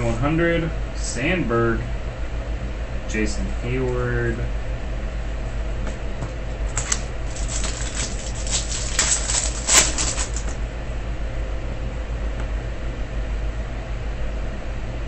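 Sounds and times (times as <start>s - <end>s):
steady low hum: 0.0s - 15.0s
foil wrapper crinkling and tearing: 6.7s - 10.6s.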